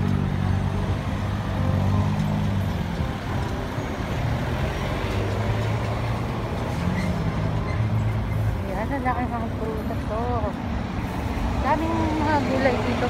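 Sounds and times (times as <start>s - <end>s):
truck and cars driving past: 0.0s - 13.0s.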